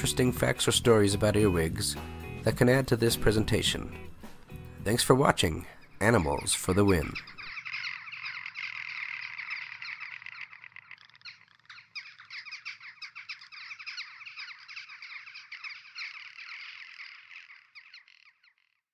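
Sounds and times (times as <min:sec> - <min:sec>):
chorus of animal chirps: 0:05.7 - 0:18.9.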